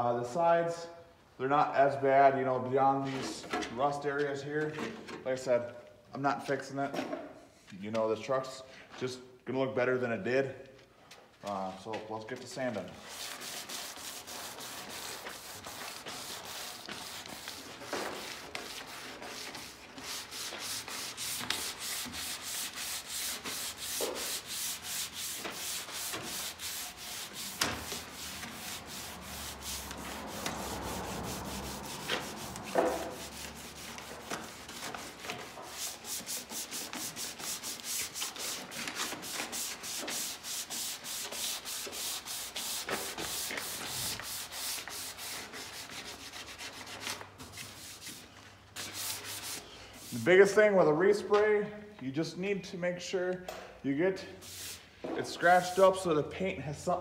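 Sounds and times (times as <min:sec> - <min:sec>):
sandpaper rubbing on metal: 0:13.0 - 0:50.6, 0:54.4 - 0:56.1.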